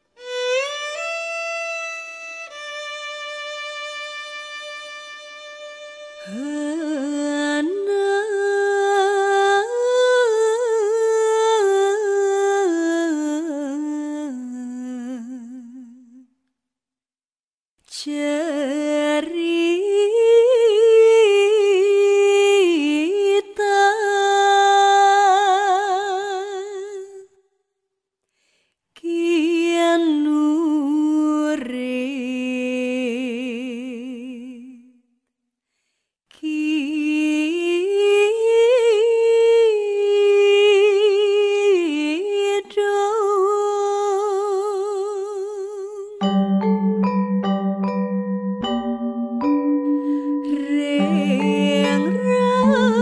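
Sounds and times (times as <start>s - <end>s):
person singing unaccompanied: 49.4s - 53.0s.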